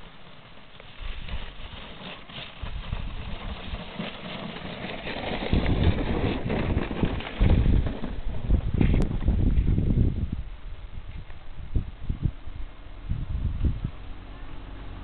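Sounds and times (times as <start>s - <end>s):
wind buffeting microphone: 2.6s - 3.8s, 5.0s - 15.0s.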